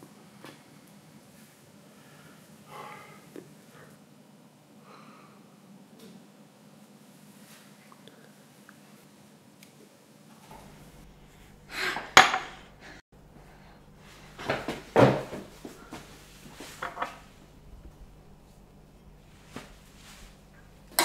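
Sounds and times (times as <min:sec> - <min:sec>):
glass scraping on countertop: 0:16.7 - 0:17.2.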